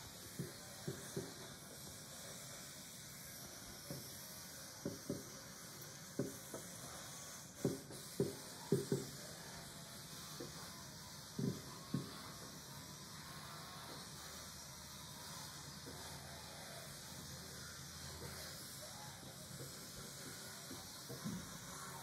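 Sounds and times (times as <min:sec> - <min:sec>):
distant fireworks thumps: 0:11.4 - 0:12.2.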